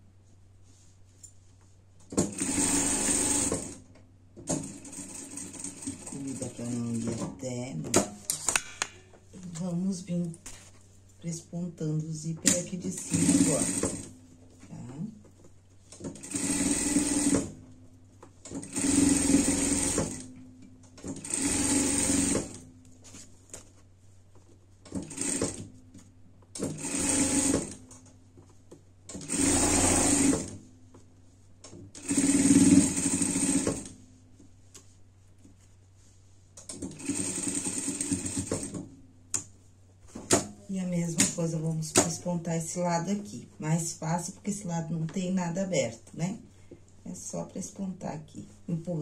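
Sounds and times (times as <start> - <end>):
sewing machine stitching: 2.2 - 3.8, 12.5 - 14.1, 16.1 - 17.5, 18.5 - 20.3, 21.0 - 22.6, 26.6 - 27.8, 29.1 - 30.6, 32.0 - 33.9, 36.7 - 38.8.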